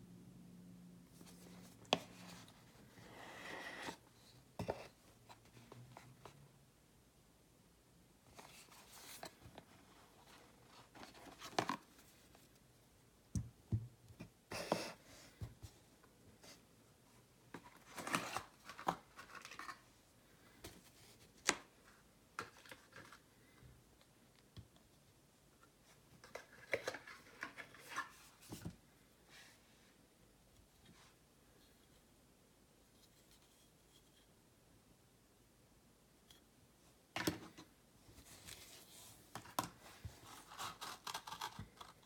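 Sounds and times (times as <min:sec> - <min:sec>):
packaging rustling and scraping: 0:17.6 - 0:19.8, 0:38.2 - 0:42.0.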